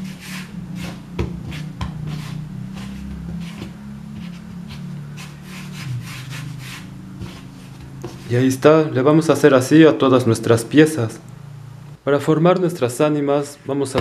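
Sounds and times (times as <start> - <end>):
dough rolling on wooden board: 0.0 - 8.5
steady low hum: 0.0 - 14.0.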